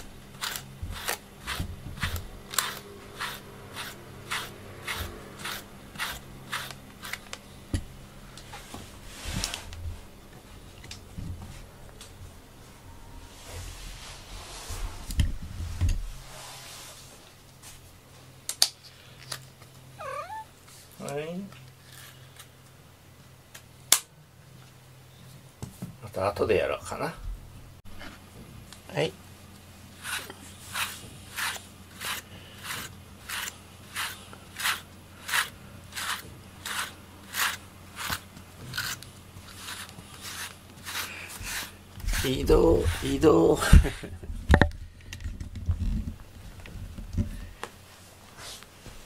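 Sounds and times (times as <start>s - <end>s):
wire brush raking through fur: 0.4s - 7.3s, 30.0s - 43.6s.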